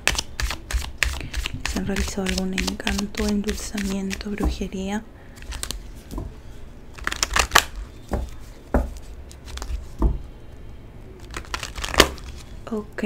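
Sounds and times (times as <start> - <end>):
cards being shuffled: 0.0 - 4.4, 5.4 - 5.9, 7.0 - 10.0, 11.2 - 12.6.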